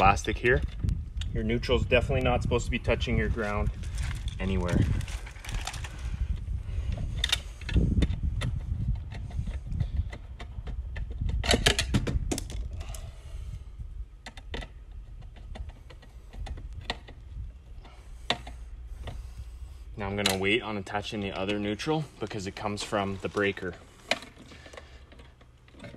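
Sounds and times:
steady low rumble: 0:00.0 - 0:25.7
metal parts clicking and rattling: 0:20.0 - 0:25.9.

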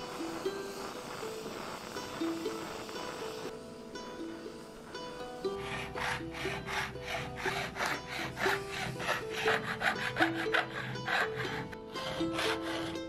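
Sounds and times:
soft background music: 0:00.0 - 0:13.0
hand file rasping on metal: 0:05.5 - 0:13.0.

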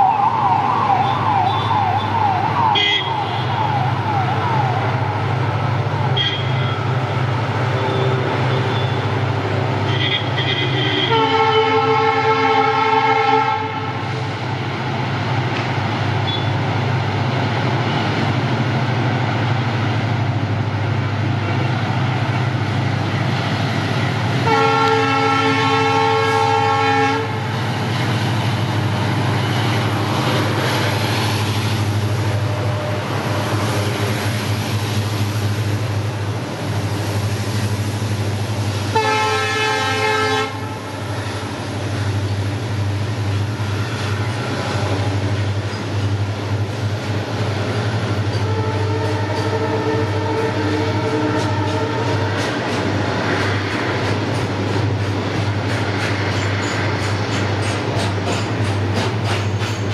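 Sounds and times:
diesel locomotive engine hum: 0:00.0 - 0:59.9
freight wagons rumbling on track: 0:00.0 - 0:59.9
locomotive horn blasts: 0:02.7 - 0:03.6, 0:06.2 - 0:06.9, 0:07.7 - 0:14.0, 0:16.2 - 0:16.5, 0:24.4 - 0:27.5, 0:38.9 - 0:40.8, 0:48.4 - 0:52.4.

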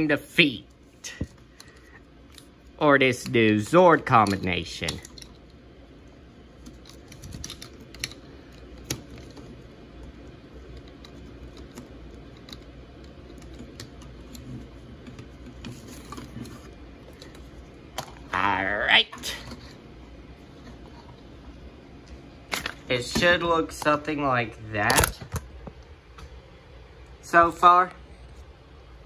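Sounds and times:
plastic toy parts clicking: 0:06.6 - 0:09.4.

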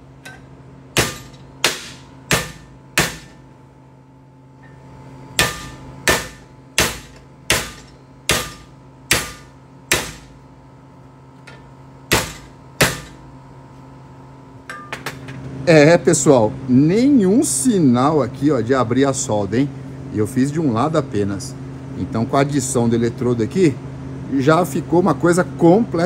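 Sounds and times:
hammer striking steel: 0:00.2 - 0:03.4, 0:05.4 - 0:10.3, 0:12.1 - 0:13.2.

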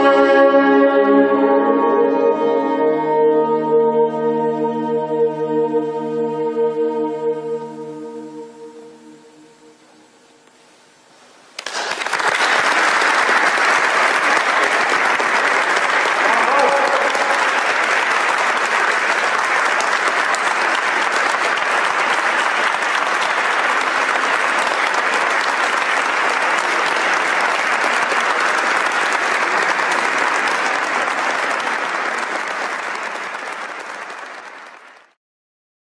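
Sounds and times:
audience applauding: 0:11.6 - 0:35.2.

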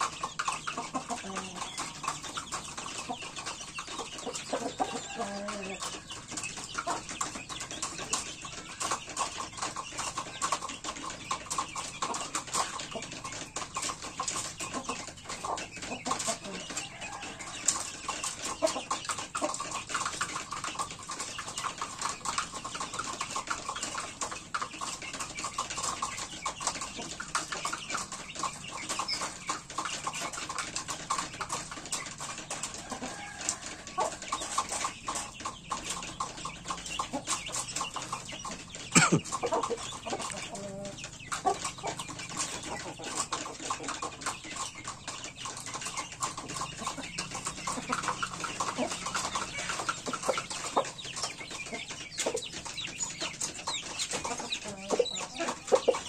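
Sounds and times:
chickens clucking: 0:00.0 - 0:56.0.

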